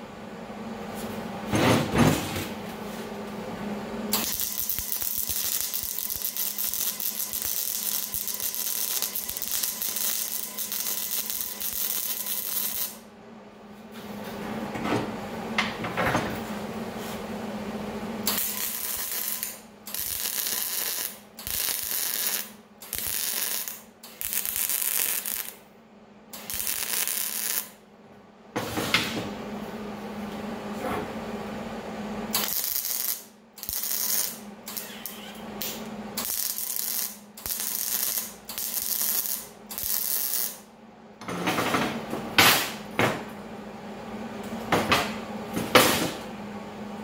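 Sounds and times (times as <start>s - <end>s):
welder arc crackling: 4.1s - 13.0s, 18.3s - 25.6s, 26.4s - 27.8s, 32.3s - 34.9s, 35.6s - 40.6s.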